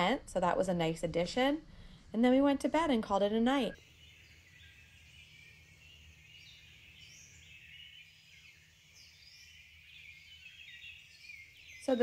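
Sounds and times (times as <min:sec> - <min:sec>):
low background hum: 0:00.0 - 0:12.0
birds chirping and whistling: 0:03.8 - 0:12.0.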